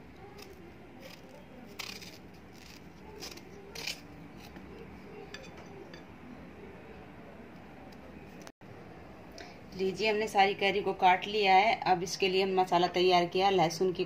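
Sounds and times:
knife cutting raw mango: 0:00.3 - 0:04.9.

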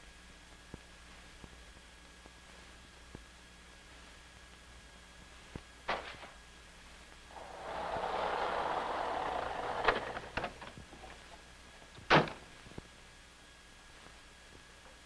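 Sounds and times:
old car driving up: 0:07.3 - 0:11.2.

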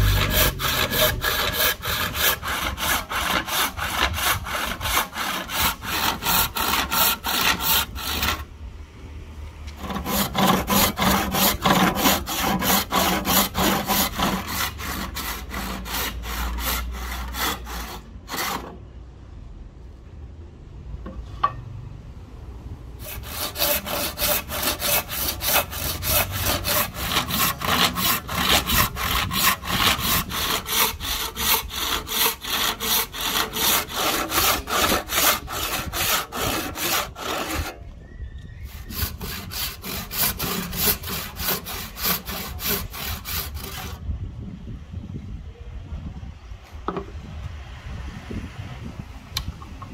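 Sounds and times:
hand saw cutting wood: 0:00.0 - 0:08.5, 0:09.8 - 0:18.8, 0:23.0 - 0:37.8, 0:38.7 - 0:44.0.

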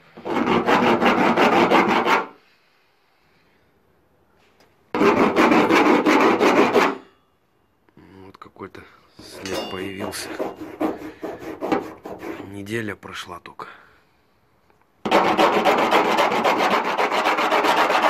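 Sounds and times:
hand tool scraping coating: 0:04.9 - 0:07.0, 0:09.2 - 0:12.6, 0:15.1 - 0:18.0.

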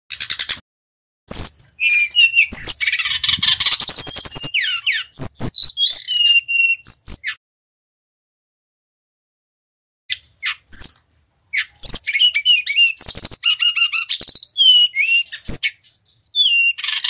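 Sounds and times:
bird singing whistled notes: 0:01.3 - 0:07.4, 0:10.1 - 0:17.0.

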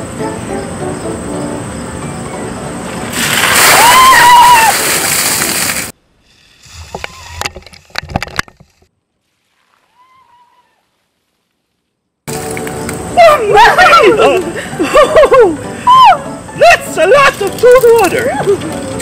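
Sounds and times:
sharp splashes and slaps: 0:03.0 - 0:06.0
water splashing down: 0:03.0 - 0:06.0.

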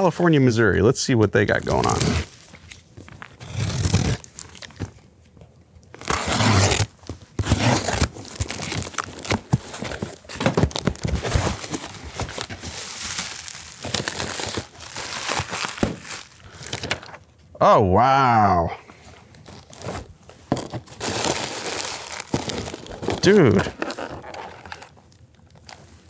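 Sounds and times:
packing paper crinkling: 0:01.4 - 0:05.1, 0:05.9 - 0:17.2, 0:19.4 - 0:26.0
cardboard box tearing: 0:01.6 - 0:02.3, 0:03.3 - 0:04.9, 0:06.0 - 0:17.0, 0:19.7 - 0:24.9.

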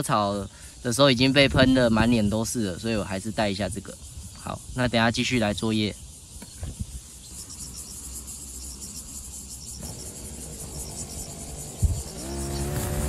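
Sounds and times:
insects chirring: 0:00.0 - 0:13.0
grass trimmer engine: 0:09.8 - 0:13.0.

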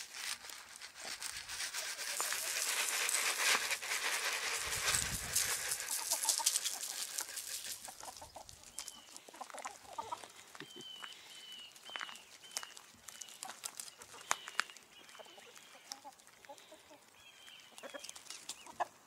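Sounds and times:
hens clucking: 0:01.8 - 0:10.6, 0:17.7 - 0:19.0.

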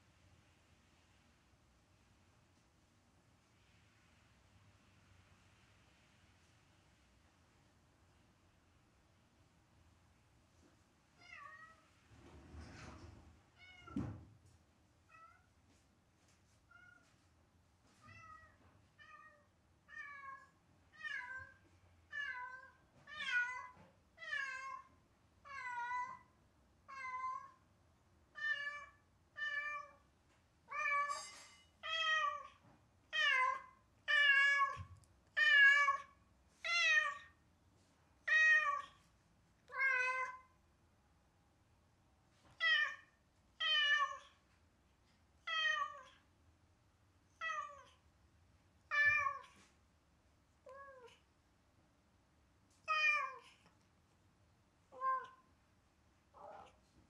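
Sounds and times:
cat meowing: 0:18.1 - 0:24.9, 0:38.3 - 0:39.0, 0:39.7 - 0:40.5, 0:42.6 - 0:44.4, 0:45.5 - 0:46.2, 0:47.4 - 0:48.0, 0:48.9 - 0:49.6, 0:50.7 - 0:51.2, 0:52.9 - 0:53.6, 0:54.9 - 0:55.5, 0:56.3 - 0:56.8.

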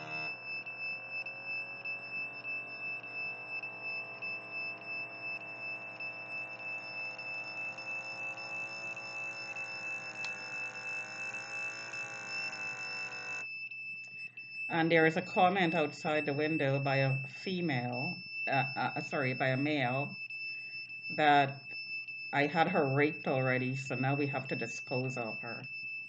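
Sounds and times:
electric pump humming: 0:00.0 - 0:13.5
high-pitched electronic whine: 0:00.0 - 0:13.5.

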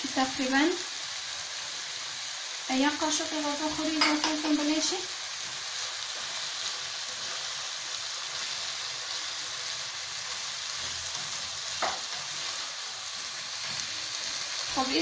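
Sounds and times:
vegetables sizzling in a wok: 0:00.0 - 0:15.0
spatula knock: 0:11.8 - 0:12.1.

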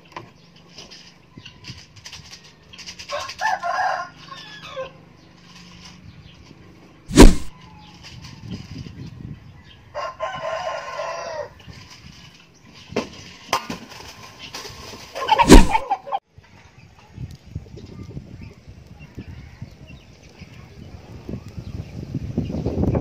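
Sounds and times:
air rifle shots: 0:07.1 - 0:07.5, 0:15.4 - 0:15.8.

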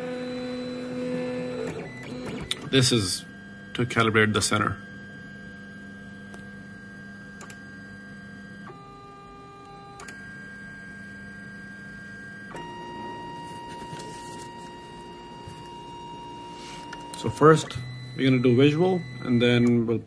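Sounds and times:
stepper motors whining: 0:12.2 - 0:19.9.

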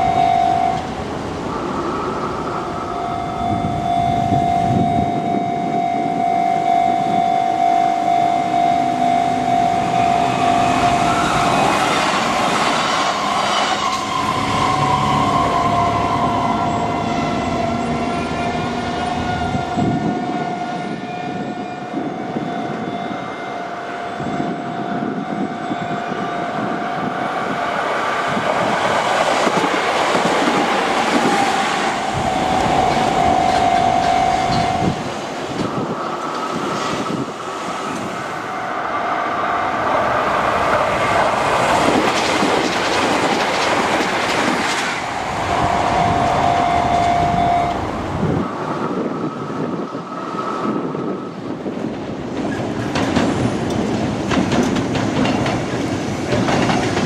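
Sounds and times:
level crossing bell ringing: 0:00.0 - 0:00.8, 0:32.0 - 0:35.0
electric trains passing: 0:00.0 - 0:57.0.

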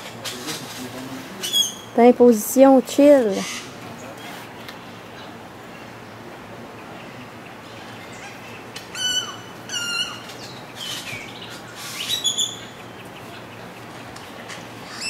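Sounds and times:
high-pitched animal calls: 0:08.1 - 0:11.0.

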